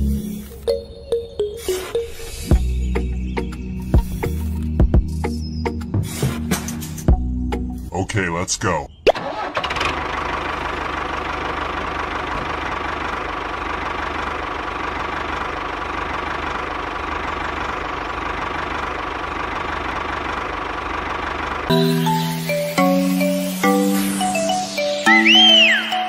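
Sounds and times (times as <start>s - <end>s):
tractor engine chugging: 9.2s - 25.8s.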